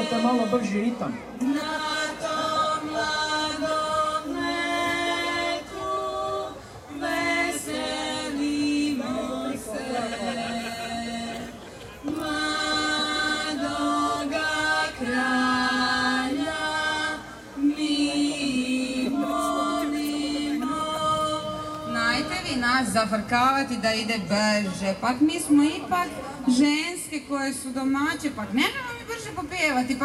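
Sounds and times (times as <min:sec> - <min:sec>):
women singing a cappella: 0:01.4 - 0:23.3.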